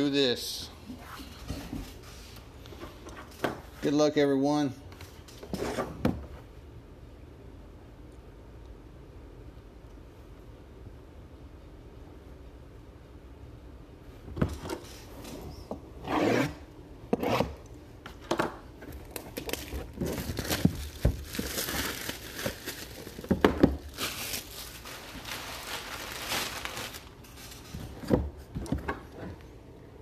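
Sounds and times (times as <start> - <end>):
plastic wrap crinkling and tearing: 19.0 - 27.9.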